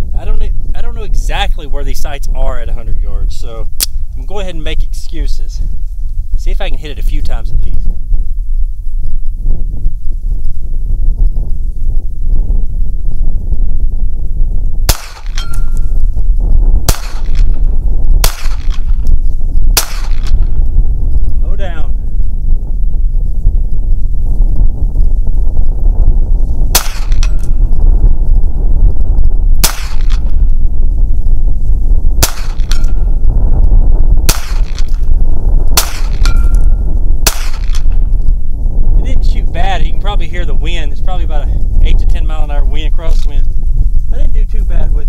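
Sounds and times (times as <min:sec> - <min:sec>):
wind rumble on microphone: 0:00.0 - 0:45.0
pistol shots: 0:14.9 - 0:15.7, 0:16.9 - 0:17.5, 0:18.2 - 0:18.9, 0:19.8 - 0:20.4, 0:26.8 - 0:27.4, 0:29.6 - 0:30.2, 0:32.2 - 0:33.0, 0:34.3 - 0:34.9, 0:35.8 - 0:36.4, 0:37.3 - 0:38.0
steel plate ringing: 0:14.9 - 0:16.0, 0:35.9 - 0:36.7
thin ringing tone: 0:15.4 - 0:16.2, 0:36.3 - 0:36.9.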